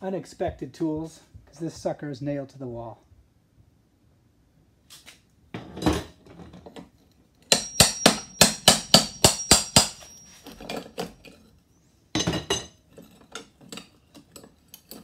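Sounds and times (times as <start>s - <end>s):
hammer striking metal bar: 7.5s - 10.2s.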